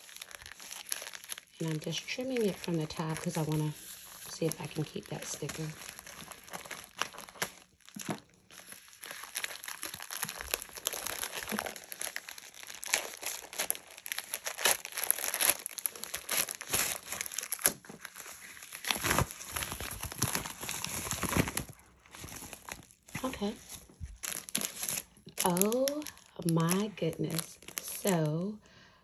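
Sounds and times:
plastic crinkling: 0:00.0 - 0:28.6
scissors cutting plastic mailer: 0:04.3 - 0:21.7.

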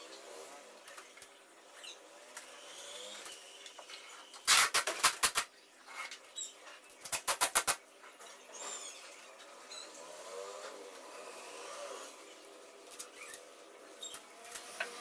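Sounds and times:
tape ripping off roll: 0:04.4 - 0:05.5, 0:07.0 - 0:07.8.

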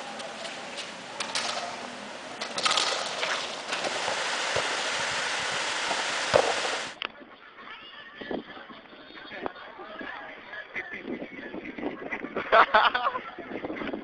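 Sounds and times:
hiss-like rushing noise: 0:03.0 - 0:07.0.

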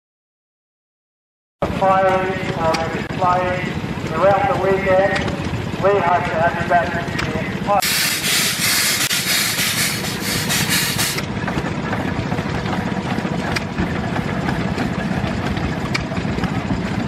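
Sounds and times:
low steady engine: 0:01.6 - 0:17.0
steam venting hiss: 0:07.8 - 0:11.2.

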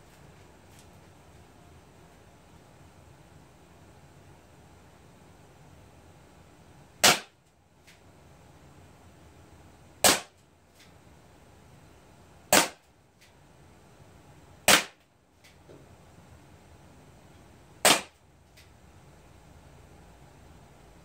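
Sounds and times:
air pistol pops: 0:07.0 - 0:07.3, 0:10.0 - 0:10.3, 0:12.5 - 0:12.8, 0:14.7 - 0:15.0, 0:17.8 - 0:18.2.

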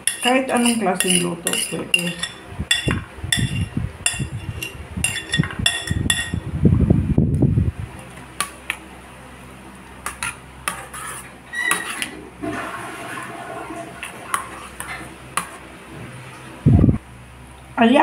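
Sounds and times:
metal spoon clinking: 0:00.0 - 0:06.4
spoon scraping a pan: 0:00.0 - 0:06.4, 0:10.0 - 0:12.2, 0:13.9 - 0:15.7
spoon tapping a pan: 0:00.0 - 0:06.4.

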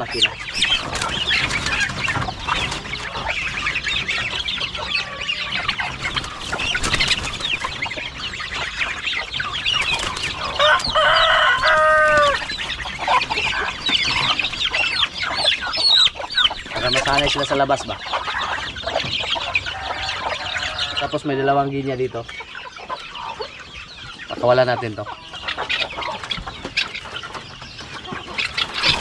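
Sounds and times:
chickens clucking: 0:00.0 - 0:29.0
chicks peeping: 0:00.0 - 0:29.0
rooster crowing: 0:10.4 - 0:12.5, 0:19.4 - 0:21.4.

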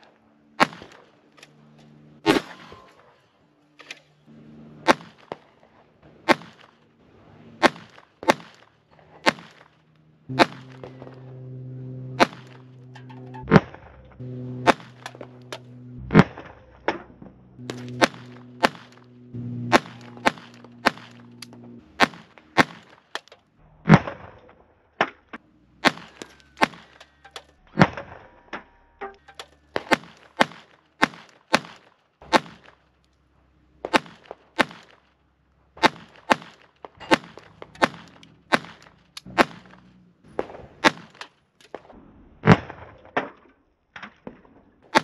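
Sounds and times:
low steady tones: 0:00.0 - 0:31.1
pistol shots: 0:00.6 - 0:01.3, 0:02.2 - 0:02.9, 0:04.8 - 0:06.9, 0:07.6 - 0:11.4, 0:12.0 - 0:24.4, 0:25.2 - 0:28.3, 0:29.2 - 0:32.9, 0:33.8 - 0:35.2, 0:35.8 - 0:43.4, 0:44.2 - 0:45.0.

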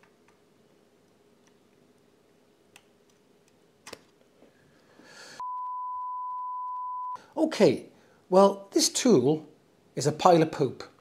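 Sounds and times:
loud steady test-tone beep: 0:05.4 - 0:07.2.

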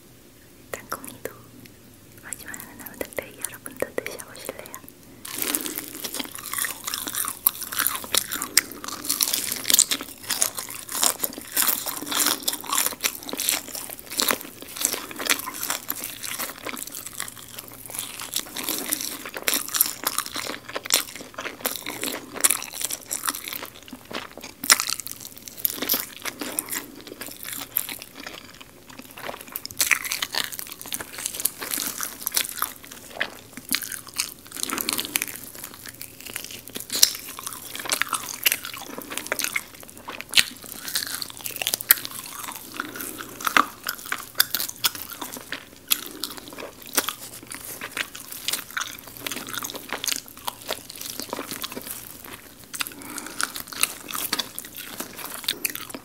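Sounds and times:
crunchy chewing of fried chicken: 0:02.2 - 0:56.0.

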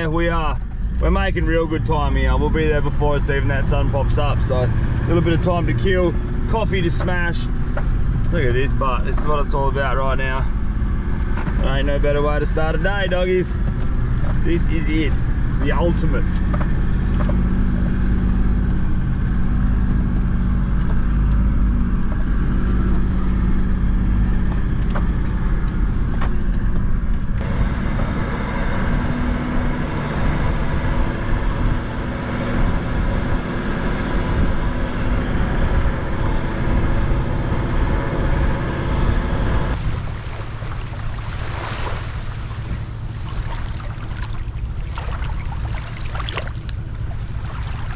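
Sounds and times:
vehicle engine drone inside cabin: 0:00.0 - 0:47.9
wind noise: 0:15.2 - 0:47.9.

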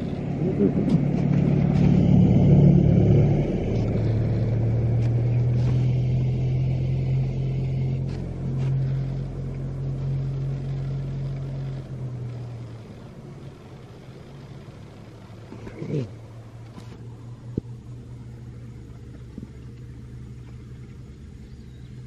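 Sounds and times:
low engine hum: 0:00.0 - 0:22.0.

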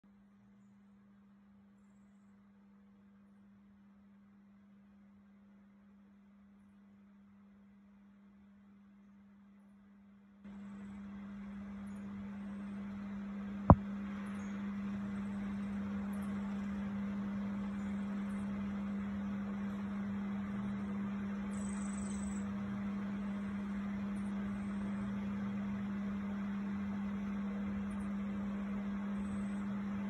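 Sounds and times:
machine hum with hiss: 0:10.5 - 0:30.0.

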